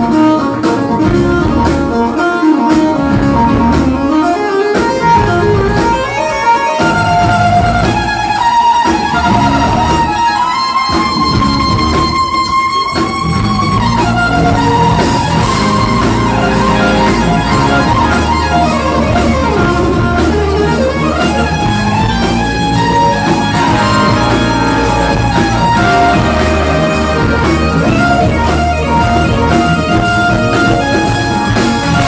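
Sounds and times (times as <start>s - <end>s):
live funk band: 0.0s - 32.0s
sliding keyboard lead line: 13.5s - 32.0s.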